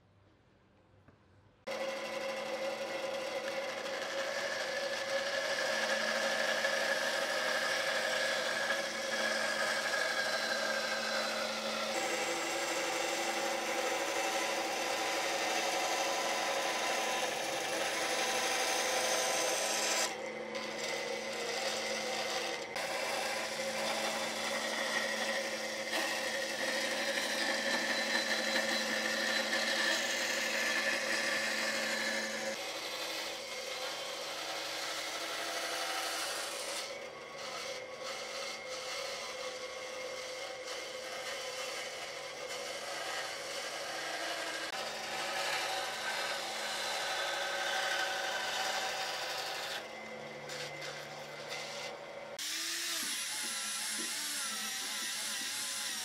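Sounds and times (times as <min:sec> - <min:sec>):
bandsaw blade cutting wood: 0:01.7 - 0:56.0
bandsaw machine hum: 0:01.7 - 0:56.0.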